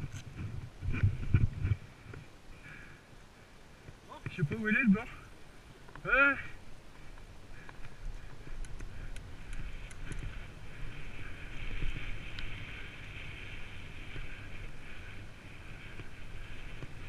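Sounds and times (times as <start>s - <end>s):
wind buffeting microphone: 0.0s - 2.3s, 6.8s - 17.0s
bike tyres rumbling on gravel: 9.3s - 17.0s.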